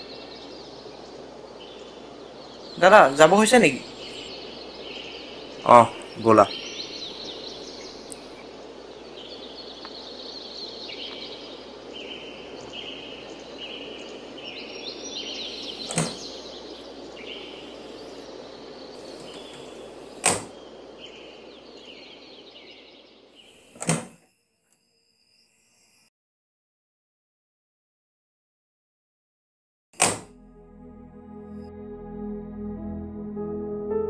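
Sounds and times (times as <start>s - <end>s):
high repeated chirping calls: 0.0s - 23.7s
steady hiss: 0.0s - 24.2s
van door unlatching: 15.8s - 16.2s.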